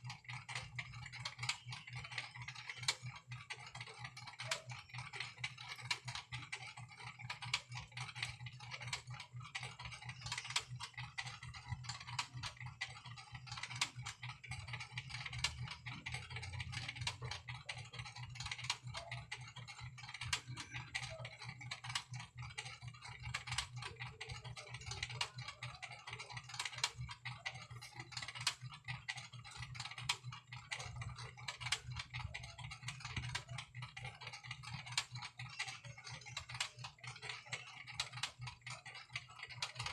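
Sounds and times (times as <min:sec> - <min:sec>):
rapid light clicks: 0:00.0 - 0:39.9
steady low hum: 0:00.0 - 0:39.9.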